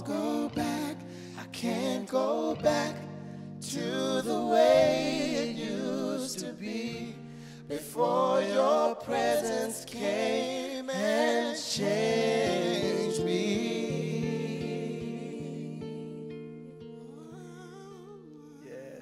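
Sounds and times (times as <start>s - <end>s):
acoustic guitar: 0.0s - 19.0s
man and woman singing: 0.0s - 19.0s.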